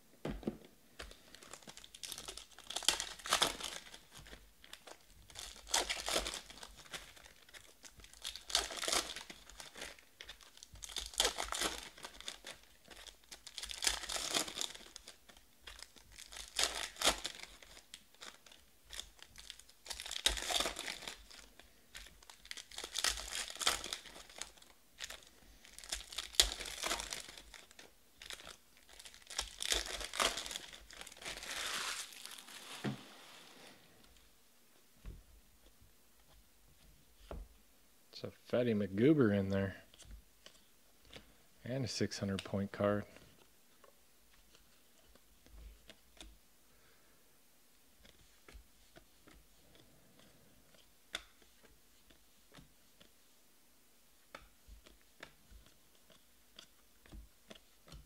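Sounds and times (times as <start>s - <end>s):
cards rustling and flicking: 1.0s - 33.7s, 48.0s - 53.1s
pack wrappers crinkling: 1.0s - 34.2s.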